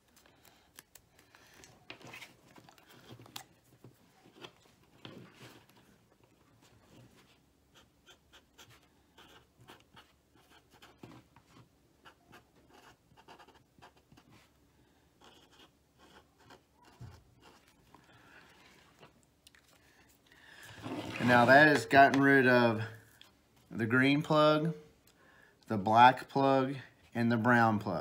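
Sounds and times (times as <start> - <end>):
marker scratching on tape: 7.7 - 11.2, 12.0 - 14.3, 15.2 - 17.7.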